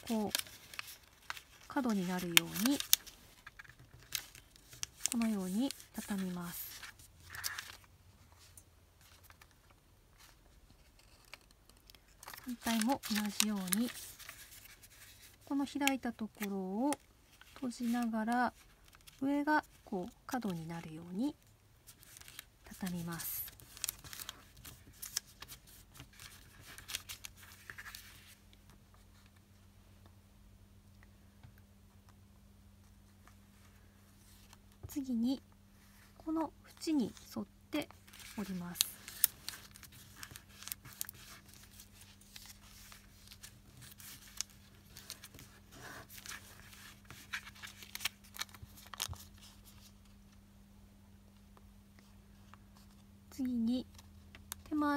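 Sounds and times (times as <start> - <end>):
paper rustling and crackling: 0.0 - 19.2, 21.8 - 29.3, 37.8 - 50.1.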